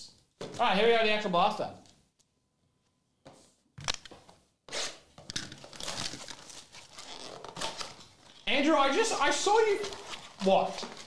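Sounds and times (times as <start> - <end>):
plastic shrink wrap crinkling: 5.3 - 11.0.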